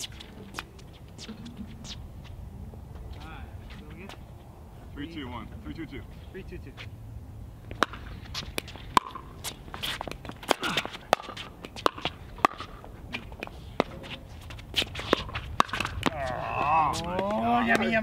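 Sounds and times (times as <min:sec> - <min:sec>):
shoes scuffing on hard court: 0:07.7 - 0:17.4.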